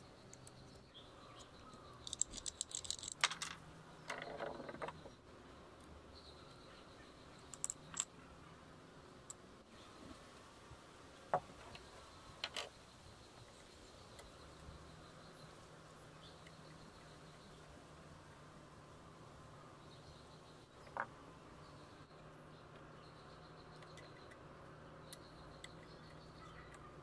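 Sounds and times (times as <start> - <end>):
small metal parts clicking and jingling: 0.0 - 5.1, 7.3 - 8.2.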